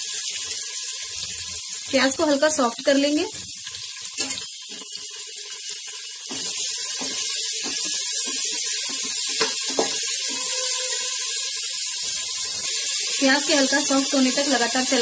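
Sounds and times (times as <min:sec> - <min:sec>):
onions sizzling in oil: 0:00.0 - 0:15.0
wooden spatula scraping a pot: 0:06.3 - 0:11.3.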